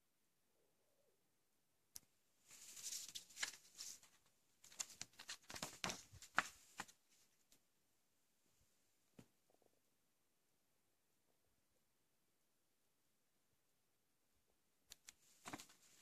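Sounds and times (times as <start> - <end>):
paper booklet rustling and crackling: 2.4 - 7.6, 15.2 - 16.0.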